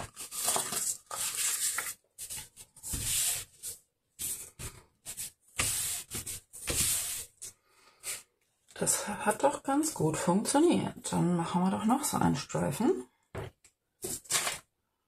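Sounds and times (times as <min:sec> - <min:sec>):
cardstock rustling and scraping: 0:00.0 - 0:08.2, 0:14.0 - 0:14.6.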